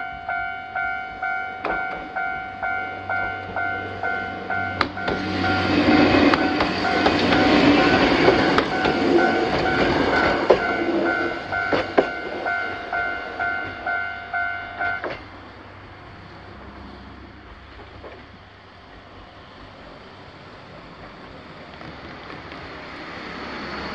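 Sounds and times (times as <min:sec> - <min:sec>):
level crossing bell dinging: 0:00.0 - 0:15.1
train wheels clacking: 0:00.0 - 0:15.4
car approaching: 0:01.6 - 0:23.9.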